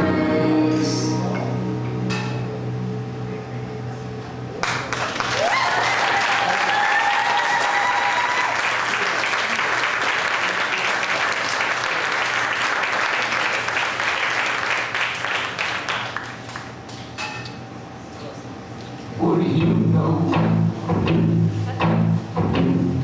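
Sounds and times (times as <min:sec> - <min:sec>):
music: 0:00.0 - 0:04.4, 0:19.2 - 0:23.0
audience applause: 0:04.6 - 0:16.8
long high cheer: 0:04.9 - 0:16.0.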